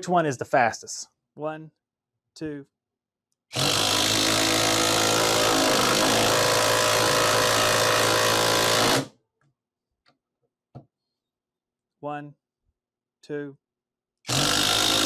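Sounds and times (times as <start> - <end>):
impact driver rattling: 3.6 - 9.1.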